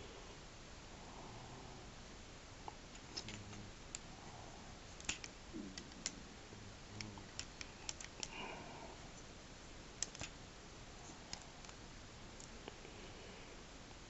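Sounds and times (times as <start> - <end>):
plastic toy clicks and taps: 10.0 - 10.3.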